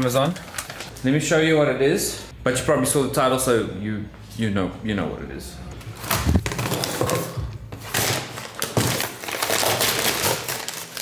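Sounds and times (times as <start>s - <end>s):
packaging rustling and crackling: 0.0s - 1.1s, 6.0s - 11.0s.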